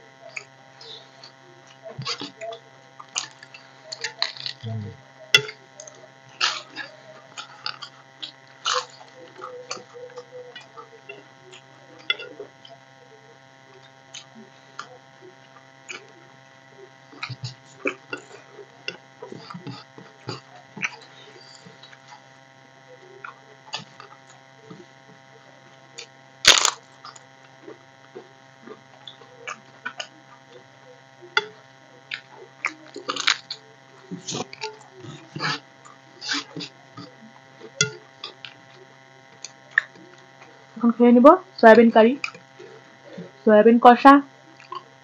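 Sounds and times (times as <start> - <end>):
fried papad crackling: 0.0 - 40.7
steady electrical hum: 0.0 - 45.0
wet eating sounds: 0.3 - 12.9, 17.1 - 22.2, 25.9 - 30.7, 31.3 - 40.8, 44.6 - 45.0
crisp food crunching: 1.2 - 4.8, 23.2 - 30.7, 31.3 - 40.7.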